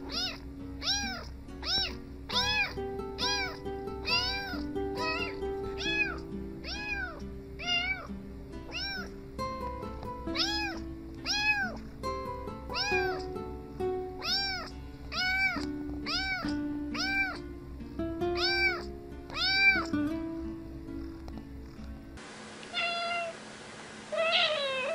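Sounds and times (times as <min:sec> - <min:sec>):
background music with steady beat: 0:00.0 - 0:07.5, 0:08.2 - 0:22.2
kitten meowing: 0:00.0 - 0:08.1, 0:08.7 - 0:09.1, 0:10.3 - 0:11.8, 0:12.7 - 0:13.4, 0:14.2 - 0:17.5, 0:18.4 - 0:20.0, 0:22.7 - 0:23.4, 0:24.1 - 0:24.9.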